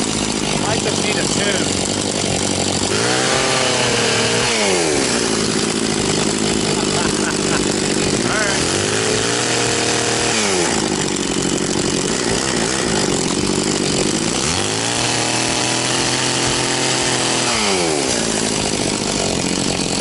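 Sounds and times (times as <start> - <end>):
chainsaw revving and idling: 0.0 - 20.0.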